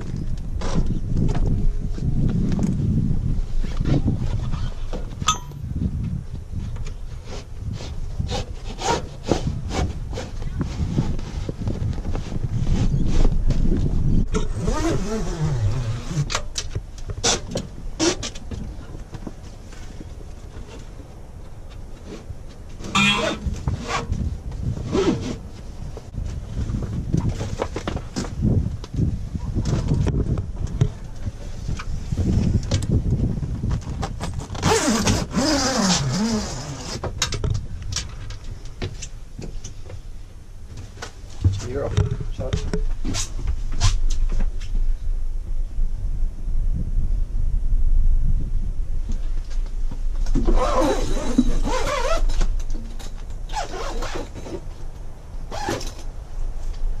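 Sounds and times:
zipper being pulled shut: 0:14.4 - 0:16.4, 0:34.5 - 0:37.1, 0:50.4 - 0:52.5, 0:53.5 - 0:54.6, 0:55.5 - 0:56.0
low rumble: 0:42.0 - 0:50.3.

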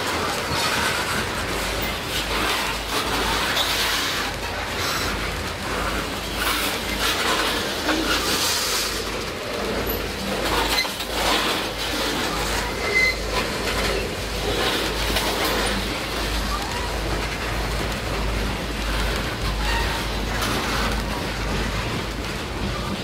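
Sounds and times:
clanks and rattles: 0:00.0 - 0:23.0
train wheels rumbling on rail: 0:00.0 - 0:23.0
high squeak: 0:12.6 - 0:13.4.

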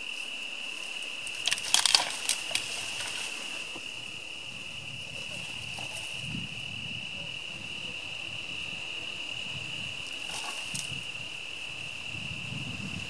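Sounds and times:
brush and twigs crackling: 0:00.0 - 0:03.9, 0:10.1 - 0:11.0
insects trilling: 0:00.0 - 0:13.0
wind rumble on microphone: 0:01.5 - 0:13.0.

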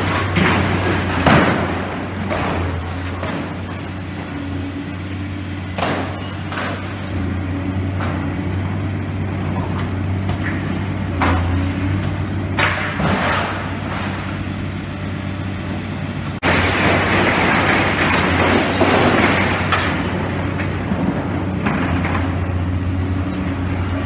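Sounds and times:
knocks and clanks: 0:00.0 - 0:04.4, 0:05.7 - 0:07.1, 0:09.5 - 0:14.5, 0:16.4 - 0:22.5
excavator diesel engine running: 0:00.0 - 0:24.0
debris crunching: 0:10.3 - 0:14.8, 0:16.4 - 0:22.5.

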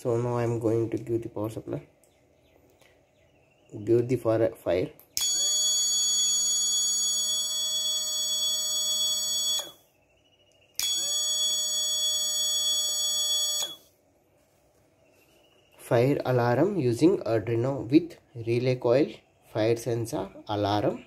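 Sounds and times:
alarm buzzer high-pitched tone: 0:05.2 - 0:09.8, 0:10.8 - 0:13.9.

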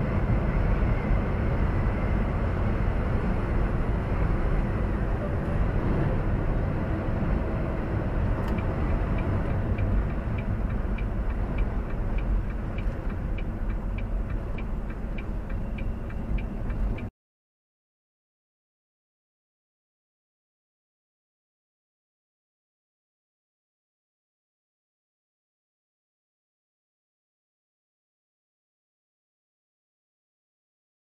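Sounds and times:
truck engine and road rumble: 0:00.0 - 0:17.1
light regular ticking: 0:08.4 - 0:17.1.

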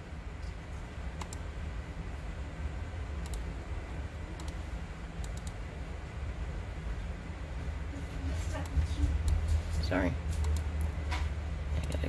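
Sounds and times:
low room hum: 0:00.0 - 0:12.0
computer mouse clicking: 0:01.2 - 0:01.4, 0:03.2 - 0:03.5, 0:04.4 - 0:04.6, 0:05.2 - 0:05.6, 0:10.4 - 0:11.0, 0:11.8 - 0:12.0.

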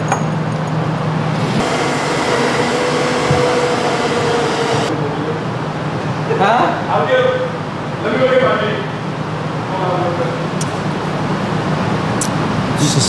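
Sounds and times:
electric hoist motor running: 0:01.2 - 0:05.0.

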